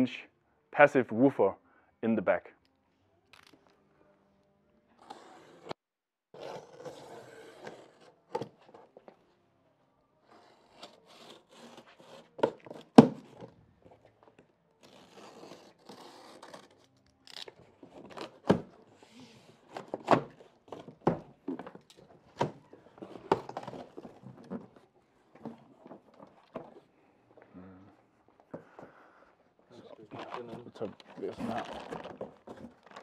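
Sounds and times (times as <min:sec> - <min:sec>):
cardboard tearing and scraping: 0:10.4 - 0:13.4, 0:14.8 - 0:18.7, 0:30.1 - 0:33.0.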